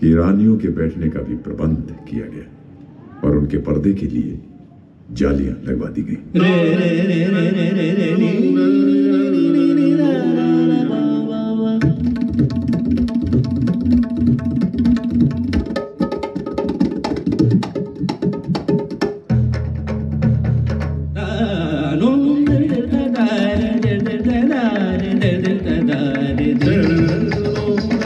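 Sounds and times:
rapid drum strokes: 22.4s - 28.0s.

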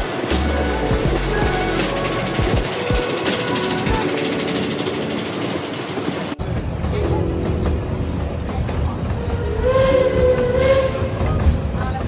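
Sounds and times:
background music: 0.0s - 11.5s
train carriage rumbling on rails: 0.0s - 12.0s.

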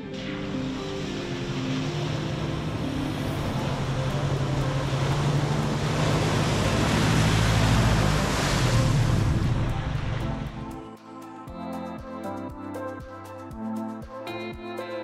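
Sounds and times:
wheels splashing through water: 0.0s - 10.8s
diesel engine running: 0.4s - 10.7s.

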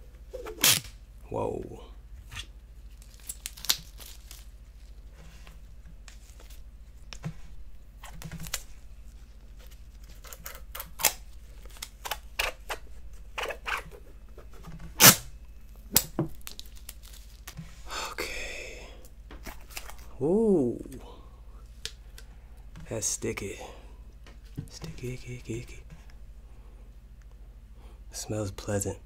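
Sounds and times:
plastic crinkling rustle: 2.8s - 7.1s, 16.3s - 17.8s.

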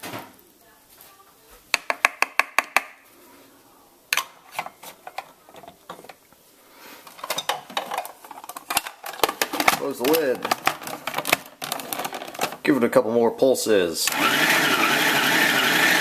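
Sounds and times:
plastic kitchenware clattering: 4.1s - 6.2s, 7.0s - 12.7s.

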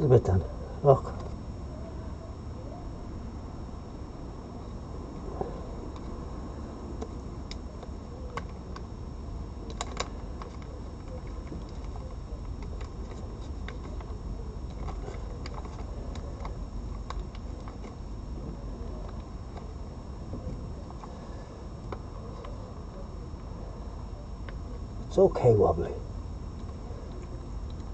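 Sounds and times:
low background hum: 0.0s - 27.9s
cat crunching dry food: 6.9s - 20.2s.

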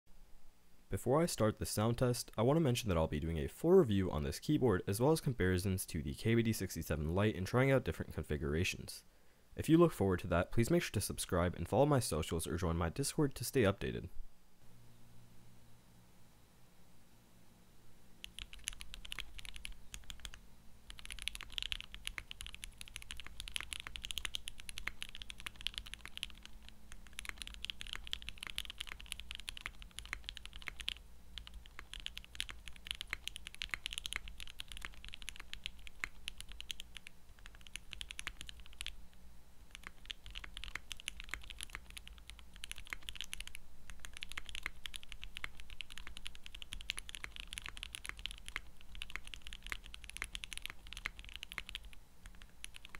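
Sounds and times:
fast typing on mechanical keyboard: 18.2s - 39.0s, 39.7s - 52.9s.

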